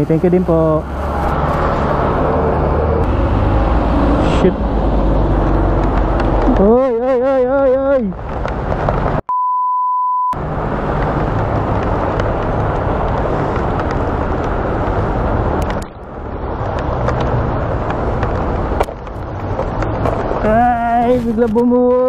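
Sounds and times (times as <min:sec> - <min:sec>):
raindrops clicking on microphone: 0:05.3 - 0:07.0, 0:07.7 - 0:09.2, 0:10.5 - 0:21.7.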